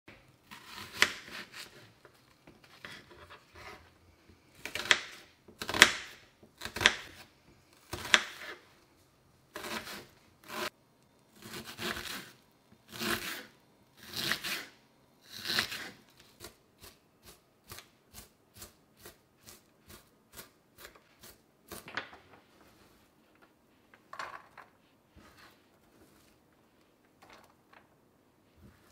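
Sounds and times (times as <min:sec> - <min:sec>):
knife crunching through onion: 0:09.5 - 0:10.7, 0:11.4 - 0:21.9.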